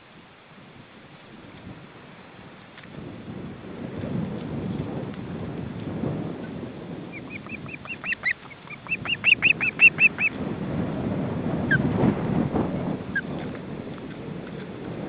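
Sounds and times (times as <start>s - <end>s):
wind rumbling on microphone: 0.0s - 15.0s
bird whistled chirps: 7.2s - 10.3s.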